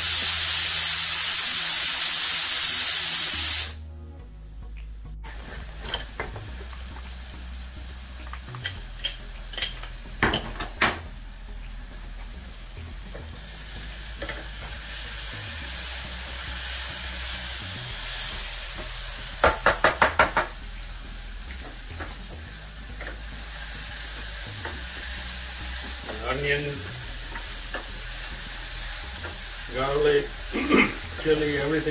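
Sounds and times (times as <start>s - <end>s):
onions sizzling in a pan: 0.0s - 3.8s, 5.3s - 31.9s
metal clicks and pot knocks: 8.4s - 11.0s
spatula tapping against pan: 19.4s - 20.6s.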